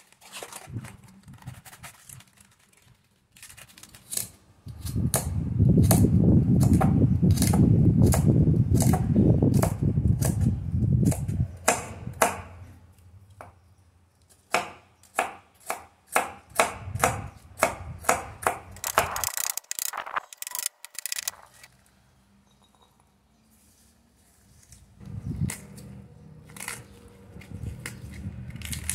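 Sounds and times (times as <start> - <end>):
knife chopping on wooden board: 11.1 - 12.6, 14.5 - 19.2.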